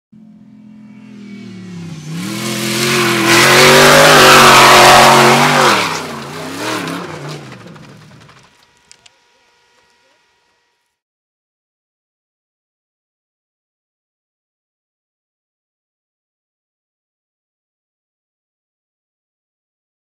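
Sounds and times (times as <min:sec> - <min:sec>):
race car engine revving: 0:00.2 - 0:08.6
spraying dirt and tyre noise: 0:01.1 - 0:09.1.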